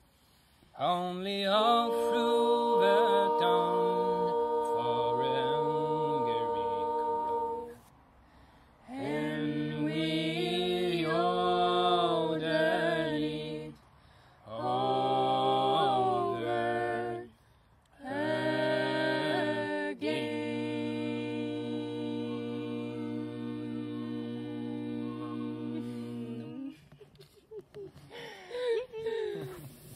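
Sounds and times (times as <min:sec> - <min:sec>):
voices singing unaccompanied: 0:00.8 - 0:07.9, 0:08.8 - 0:27.1
singer breathing: 0:08.2 - 0:08.9, 0:13.9 - 0:14.5, 0:28.0 - 0:28.8.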